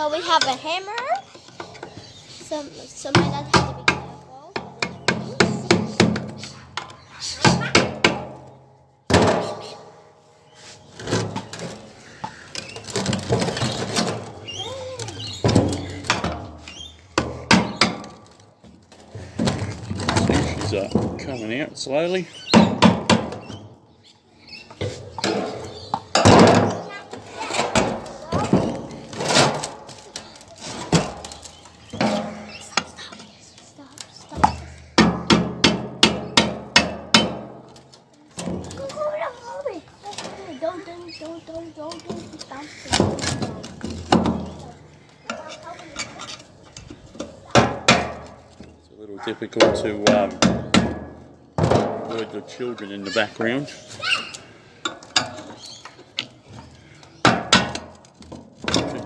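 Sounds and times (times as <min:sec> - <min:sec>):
metal knocks and scrapes: 0:10.6 - 0:23.7, 0:24.7 - 0:48.8, 0:54.8 - 0:59.0.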